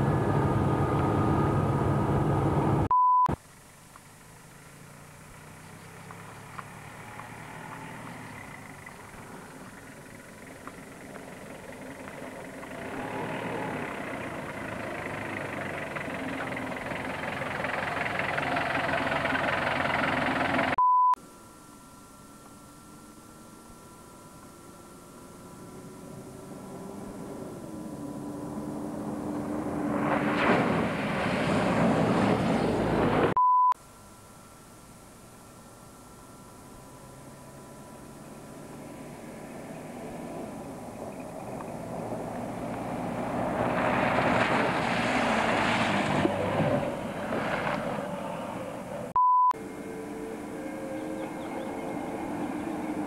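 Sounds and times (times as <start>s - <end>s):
vehicle engine running at low revs: 0.0s - 20.8s, 24.5s - 33.4s, 34.7s - 53.0s
steady beep: 2.9s - 3.4s, 20.8s - 22.3s, 33.4s - 33.8s, 49.1s - 49.6s.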